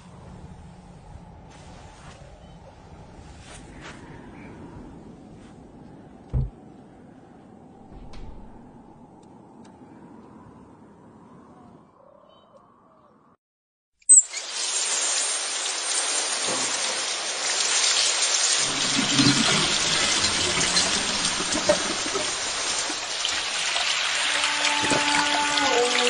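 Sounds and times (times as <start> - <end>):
shower spraying water: 14.1 - 26.0.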